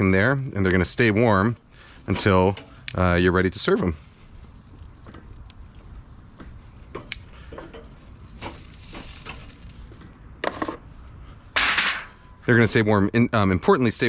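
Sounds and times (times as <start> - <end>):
sausages sizzling on grill: 0.0 - 11.2.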